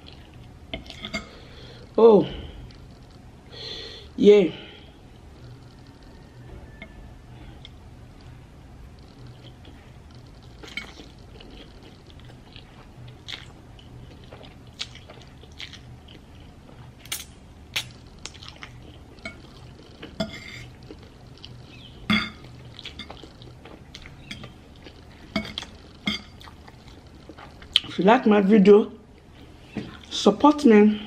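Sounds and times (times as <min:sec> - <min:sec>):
chewing: 0:00.0 - 0:01.9, 0:05.3 - 0:08.3, 0:09.0 - 0:28.0
fork clinking on ceramic plate: 0:22.1 - 0:22.5.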